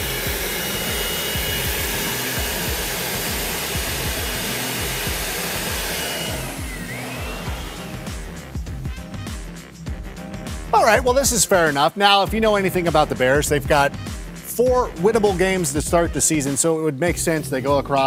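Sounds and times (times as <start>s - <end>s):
vacuum cleaner motor whooshing: 0.0s - 8.6s.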